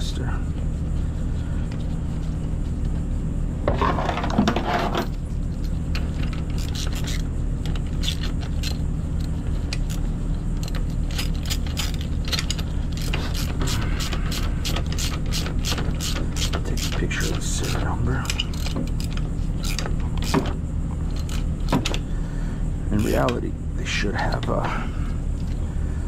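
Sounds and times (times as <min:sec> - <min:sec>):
socket ratchet clicking: 0:10.6 - 0:20.5.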